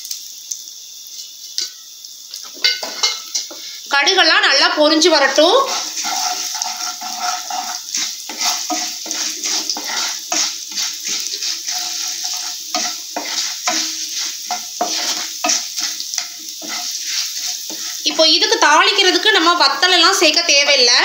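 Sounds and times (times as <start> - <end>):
seeds sizzling in hot oil: 0.0 - 21.0
wooden spatula scraping pan: 2.7 - 3.6, 5.2 - 18.3.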